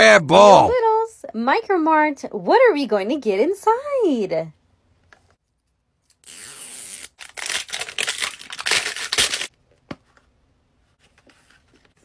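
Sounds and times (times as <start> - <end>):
plastic wrapping crinkling and tearing: 7.1 - 9.5.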